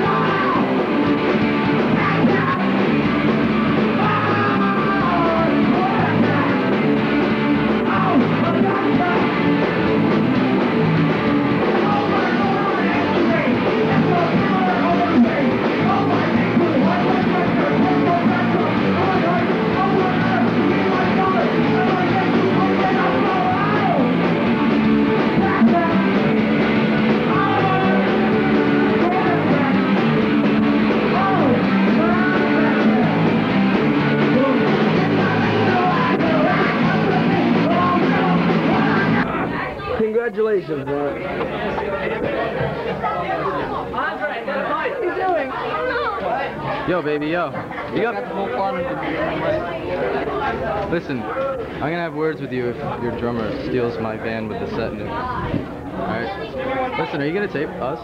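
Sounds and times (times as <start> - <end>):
person singing into a microphone: 0.0 - 1.2, 3.8 - 6.8, 11.6 - 24.3, 25.2 - 26.3, 27.2 - 30.0, 30.9 - 33.4, 34.2 - 39.3
electric guitars: 0.0 - 40.0
bass guitar: 0.0 - 40.1, 45.5 - 58.0
drums: 0.0 - 58.0.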